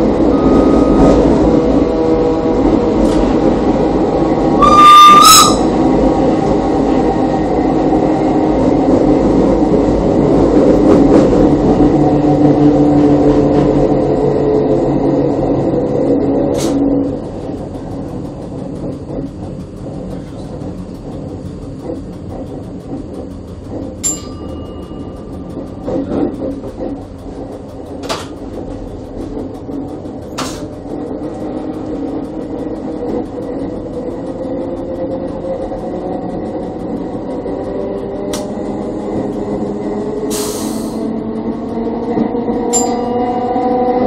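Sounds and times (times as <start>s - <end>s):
train motor whine: 0.0s - 44.0s
train wheels rumbling on rail: 0.0s - 44.0s
sharp clicks: 38.3s - 38.6s.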